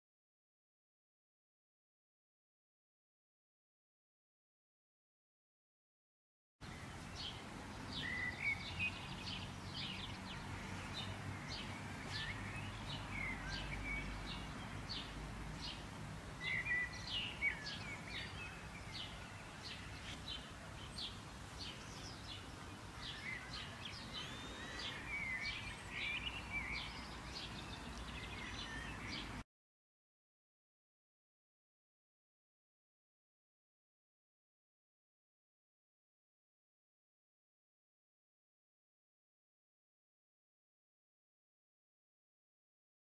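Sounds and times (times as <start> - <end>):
small birds chirping: 6.6 - 29.4.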